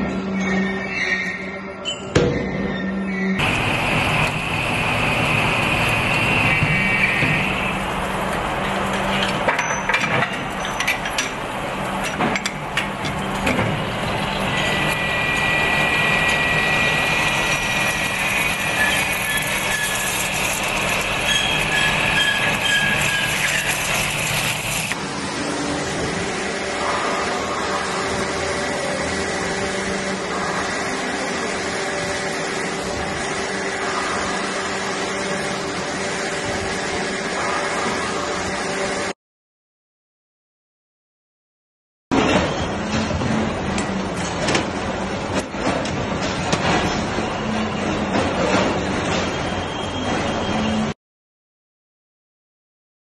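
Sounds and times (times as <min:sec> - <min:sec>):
metal-cutting machine running: 0:03.4 - 0:39.2
thin high whine: 0:14.4 - 0:25.0.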